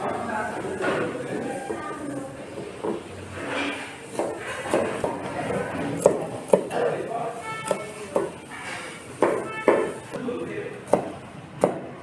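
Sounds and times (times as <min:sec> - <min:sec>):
knife chopping on cutting board: 0:04.1 - 0:05.3, 0:05.9 - 0:06.9, 0:07.7 - 0:08.4, 0:09.2 - 0:10.0, 0:10.9 - 0:11.9.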